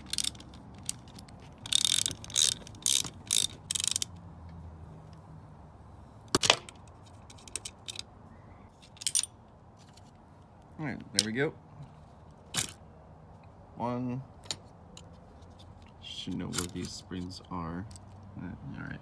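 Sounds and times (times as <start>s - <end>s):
ratchet wrench clicking: 0.0s - 4.2s.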